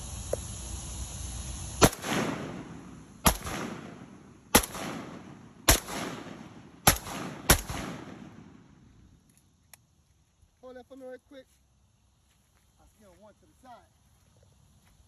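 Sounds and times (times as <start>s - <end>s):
rifle shots with echo: 1.8s - 8.8s.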